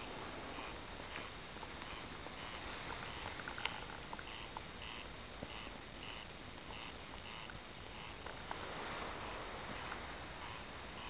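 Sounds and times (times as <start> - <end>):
faint chirping call: 0.4 - 8.2.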